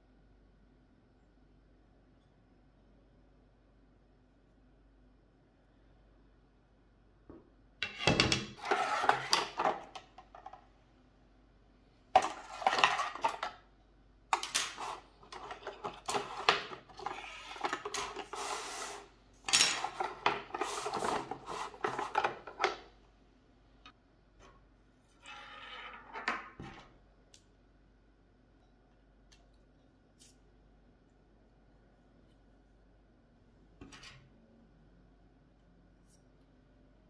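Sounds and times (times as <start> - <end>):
rod sections scraping and clattering: 8.6 - 10.6, 12.2 - 13.5, 14.4 - 22.6.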